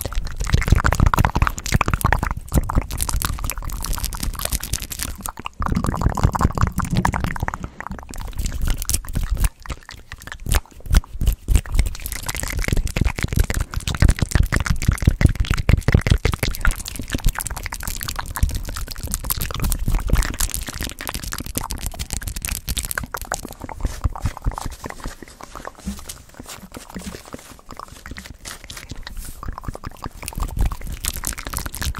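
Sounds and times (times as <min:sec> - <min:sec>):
wet mouth clicks and smacks: 0:00.0 - 0:31.9
hands brushing the microphone: 0:23.7 - 0:29.4.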